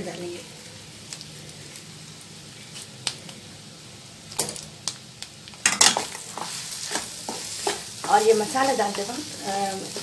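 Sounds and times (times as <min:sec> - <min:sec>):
spoon scraping and stirring: 0:06.0 - 0:08.0.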